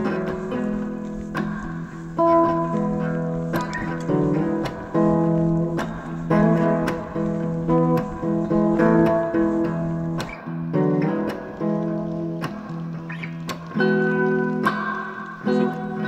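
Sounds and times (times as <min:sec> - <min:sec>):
acoustic guitar strumming: 0:00.0 - 0:16.0.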